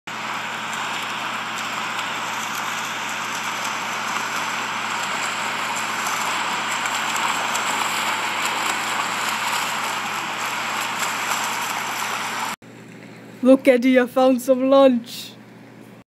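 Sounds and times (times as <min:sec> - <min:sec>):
faint crackles: 0:00.3 - 0:13.2.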